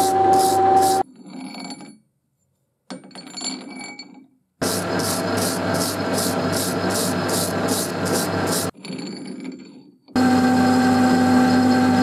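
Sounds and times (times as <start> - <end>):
hand tool scraping spinning thread: 0.0 - 2.0, 4.6 - 9.8
metal lathe running: 4.6 - 8.7, 10.2 - 12.0.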